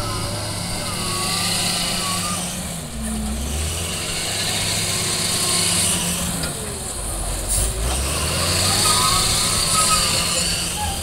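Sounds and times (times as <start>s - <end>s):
diesel engine under load: 0.0s - 11.0s.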